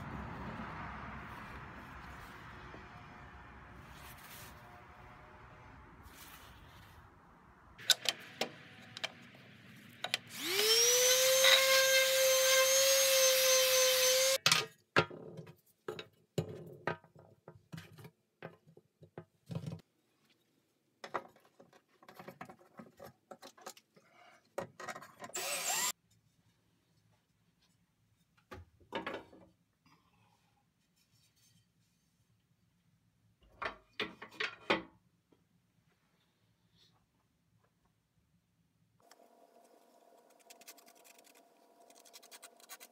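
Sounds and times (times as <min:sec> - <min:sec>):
table saw motor whining: 0:10.3 - 0:14.4, 0:25.3 - 0:25.9.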